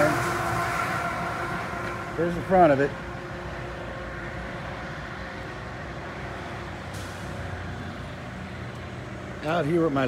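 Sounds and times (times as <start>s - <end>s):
steady outdoor rumble: 0.0s - 10.0s.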